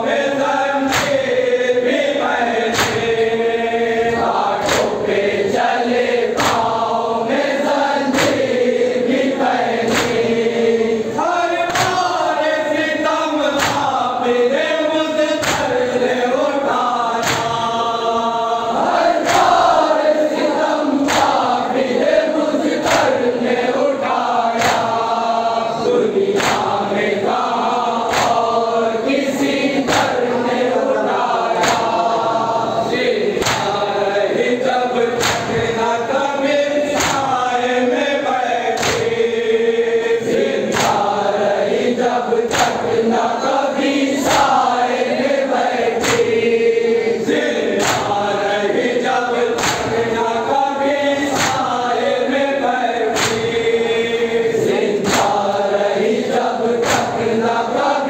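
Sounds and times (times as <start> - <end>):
men chanting in unison: 0.0 - 58.0.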